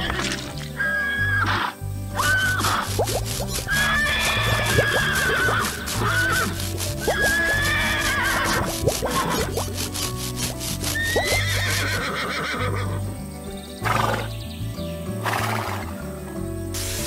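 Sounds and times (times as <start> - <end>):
cartoon horse whinnying: 0.0 - 13.1, 13.8 - 14.3
background music: 0.0 - 17.0
short hissing bursts: 0.5 - 12.1, 16.7 - 17.0.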